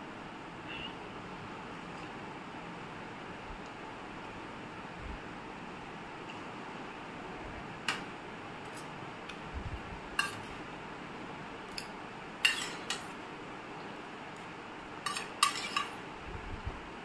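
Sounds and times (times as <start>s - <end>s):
metal spoon clinking on steel bowls: 10.2s - 10.6s, 11.7s - 13.1s, 15.0s - 16.0s.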